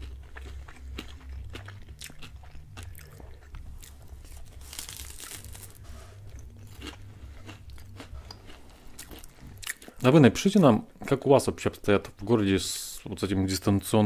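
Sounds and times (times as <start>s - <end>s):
crunching and chewing crust: 0.0s - 10.0s.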